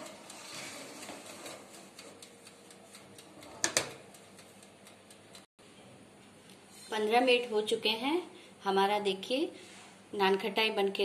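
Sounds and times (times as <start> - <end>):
oven controls clicking and ticking: 0.0 - 5.5
metal tray sliding onto rack: 0.3 - 1.8.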